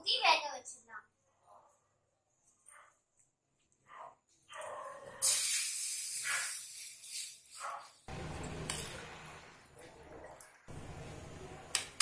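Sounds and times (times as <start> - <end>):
hot oil sizzling: 5.2 - 7.4.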